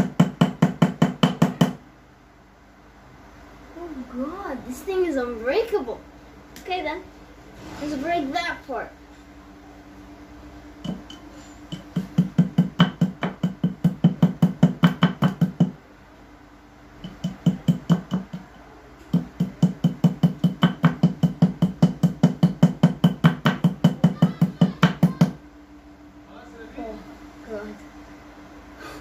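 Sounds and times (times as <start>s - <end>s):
hand tool knocking on plastic: 0.0s - 1.8s, 10.8s - 15.8s.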